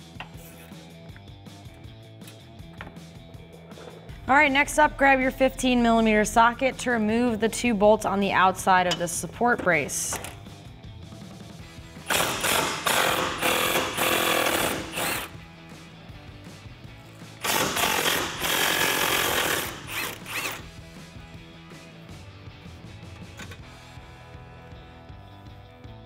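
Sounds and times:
impact wrench hammering: 0:12.0 - 0:15.3, 0:17.4 - 0:20.6.

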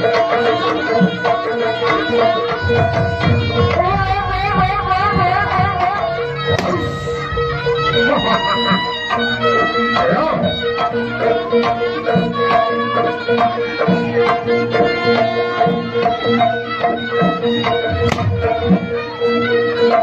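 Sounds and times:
steady drumming: 0:02.1 - 0:10.4, 0:15.7 - 0:19.0.

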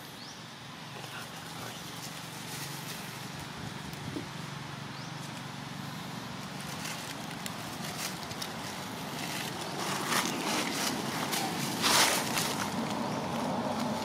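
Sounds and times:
dry leaves rustling and crackling: 0:00.9 - 0:14.0.

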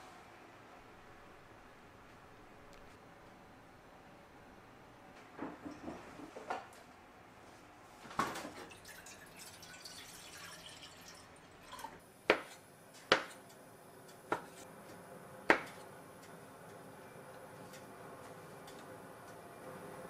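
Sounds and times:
liquid trickling into saucepan: 0:08.6 - 0:12.0
knife chopping on wooden board: 0:12.3 - 0:13.4, 0:14.3 - 0:14.6, 0:15.5 - 0:15.8.

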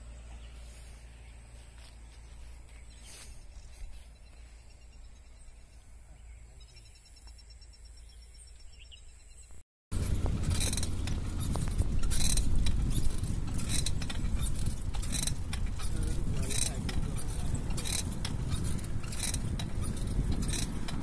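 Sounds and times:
faint insect chirping: 0:01.1 - 0:09.6
bicycle rattling and clinking: 0:09.9 - 0:21.0
wind buffeting microphone: 0:09.9 - 0:21.0.

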